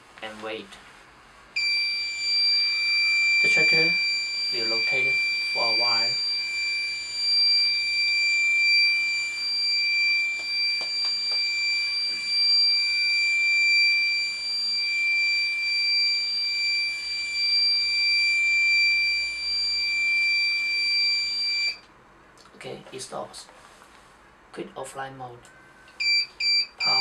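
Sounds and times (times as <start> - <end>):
high-pitched electronic buzzer tone: 1.6 - 21.8, 26.0 - 27.0.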